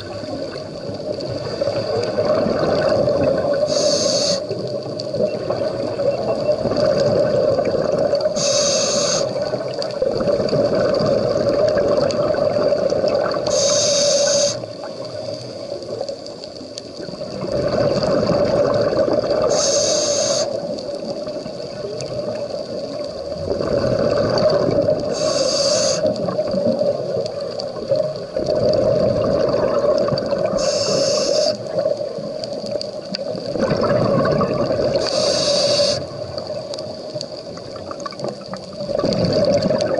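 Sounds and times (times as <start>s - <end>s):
exhaled bubbles rushing: 0.0s - 3.8s, 4.5s - 8.4s, 9.3s - 13.6s, 17.0s - 19.6s, 20.6s - 25.3s, 26.0s - 30.7s, 31.5s - 39.9s
regulator inhalation hiss: 3.5s - 4.7s, 8.2s - 9.6s, 13.4s - 15.8s, 19.4s - 20.7s, 25.0s - 26.3s, 30.5s - 31.8s, 35.0s - 36.2s.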